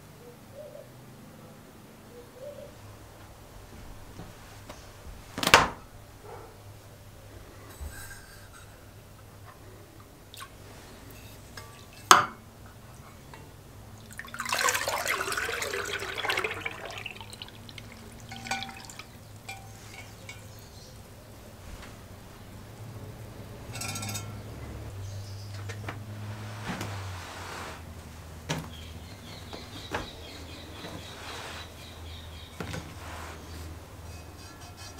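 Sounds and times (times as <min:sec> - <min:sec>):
liquid dripping: 0:13.3 - 0:21.4
liquid pouring and splashing: 0:13.9 - 0:20.6.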